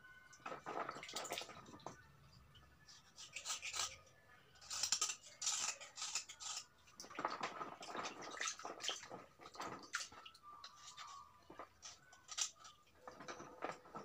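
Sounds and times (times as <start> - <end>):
knife scraping wet stone: 3.0 - 4.0, 4.6 - 9.0.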